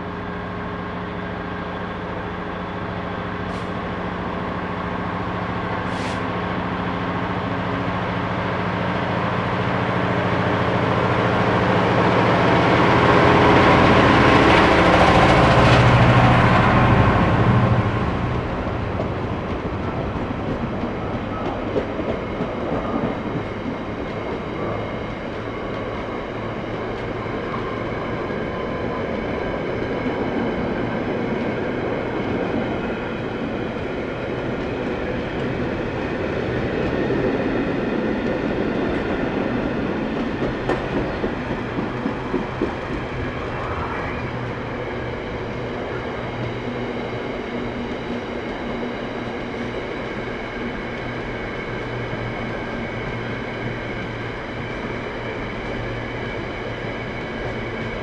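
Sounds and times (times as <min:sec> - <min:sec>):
freight train wheels rumbling: 0:00.0 - 0:58.0
train wheel clicks: 0:40.1 - 0:43.2.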